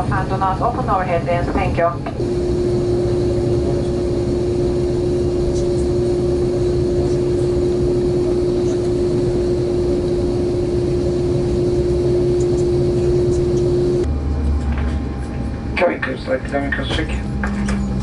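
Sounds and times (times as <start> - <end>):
aircraft cabin low rumble: 0.0 - 18.0
steady held tone: 2.2 - 14.1.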